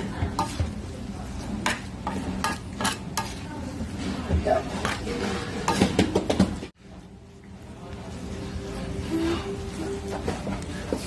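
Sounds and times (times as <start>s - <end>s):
metal spatula scraping a pan: 1.5s - 5.8s.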